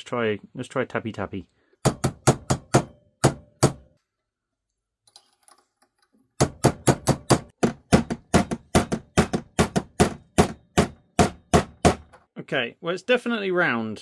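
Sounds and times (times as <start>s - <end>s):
hammer tapping metal part: 1.8s - 3.9s, 6.4s - 12.2s.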